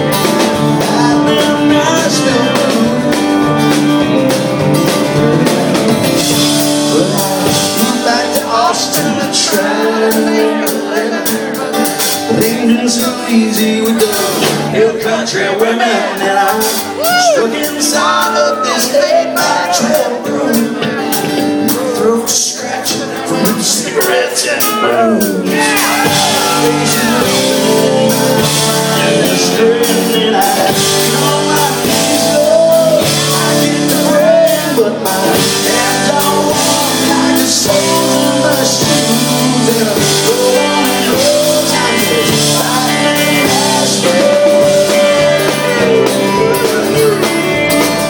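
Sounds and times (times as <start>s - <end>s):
drums and cymbal hits: 0.0s - 15.1s, 16.2s - 48.0s
bending lead guitar notes: 0.0s - 22.0s, 23.0s - 48.0s
bass guitar: 0.0s - 48.0s
guitars: 0.0s - 48.0s.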